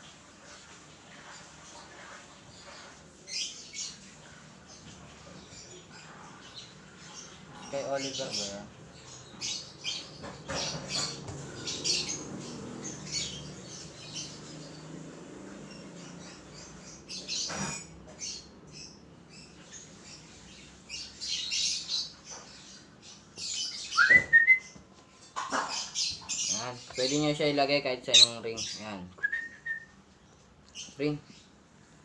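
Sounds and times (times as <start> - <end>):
bird chirps and squawks: 15.7 - 18.9, 28.0 - 28.9
bird rising whistle: 24.0 - 24.6.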